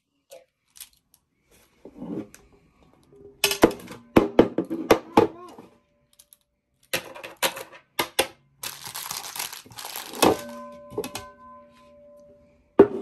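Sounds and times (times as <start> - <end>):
crinkling rustle: 8.6 - 10.7
ceramic bowl ringing: 10.1 - 13.0.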